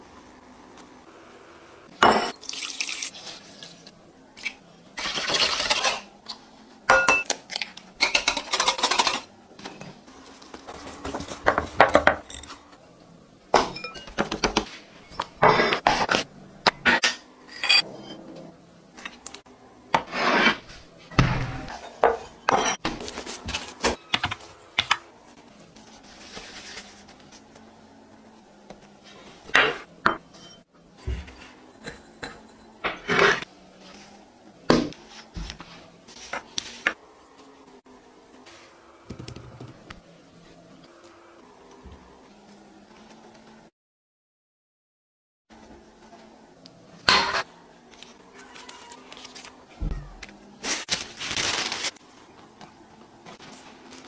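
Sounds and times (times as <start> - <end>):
glass bowls and utensils clinking: 2.0 - 2.9, 13.6 - 14.3, 16.8 - 18.2, 21.7 - 22.8, 29.5 - 30.7, 31.7 - 33.4
pouring: 2.3 - 3.8.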